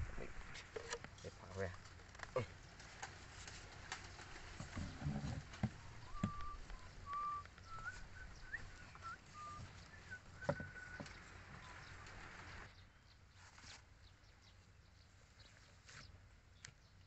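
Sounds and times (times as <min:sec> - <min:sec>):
whistled bird notes: 0:05.8 - 0:12.8.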